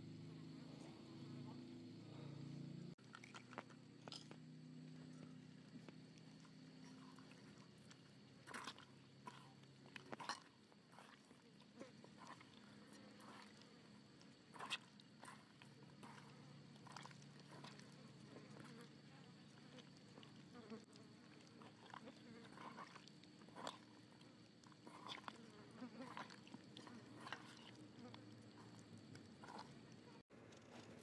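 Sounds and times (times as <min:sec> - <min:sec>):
hands squelching raw chicken: 0:03.0 - 0:04.2, 0:05.1 - 0:31.0.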